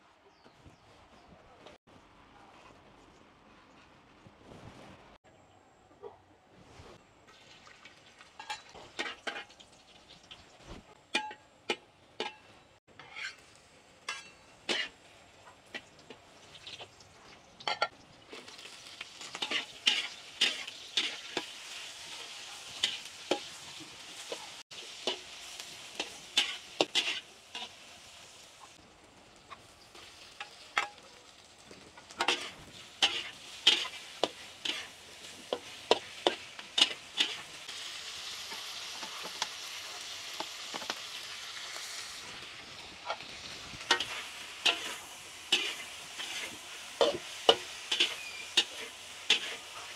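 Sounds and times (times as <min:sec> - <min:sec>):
fish sizzling in a pan: 0:07.3 - 0:10.6, 0:13.0 - 0:49.9
spatula scraping a pan: 0:12.2 - 0:16.1, 0:17.7 - 0:28.8, 0:32.0 - 0:37.6, 0:42.8 - 0:49.9.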